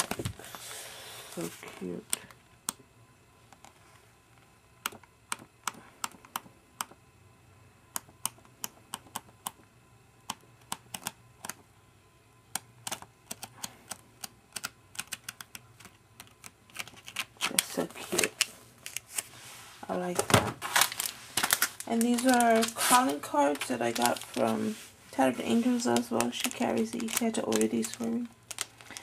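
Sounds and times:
paper pages flicking: 20.6s - 24.7s, 25.5s - 29.0s.

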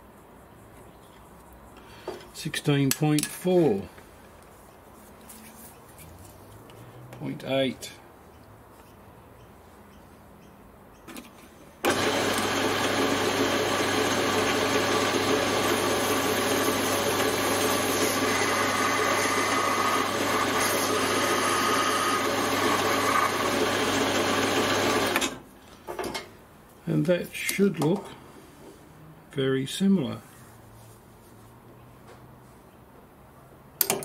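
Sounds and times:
lathe motor hum and gear whine: 11.8s - 25.4s.

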